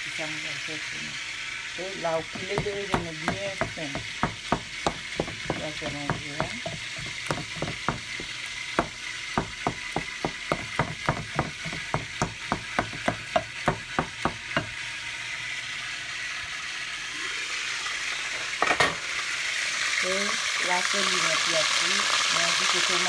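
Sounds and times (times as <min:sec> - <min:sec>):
frying sizzle: 0:00.0 - 0:23.0
wooden spoon knocking bowl: 0:02.3 - 0:14.7.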